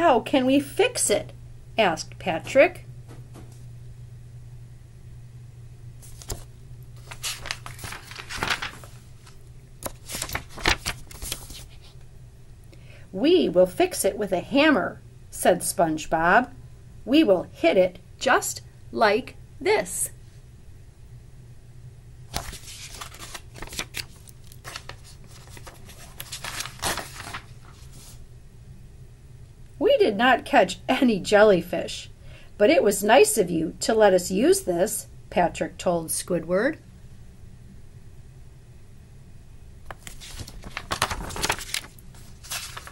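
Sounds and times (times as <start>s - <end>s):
low steady hum: 0.0s - 42.9s
paper pages rustling: 6.0s - 12.0s, 22.3s - 28.2s, 39.9s - 42.9s.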